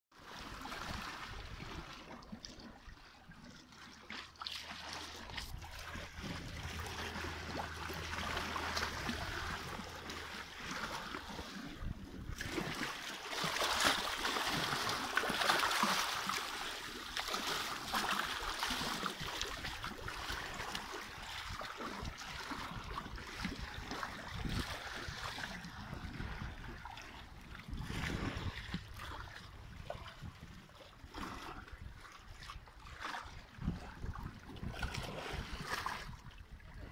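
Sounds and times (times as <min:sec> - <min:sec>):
water washing among pebbles: 0:04.0 - 0:20.7.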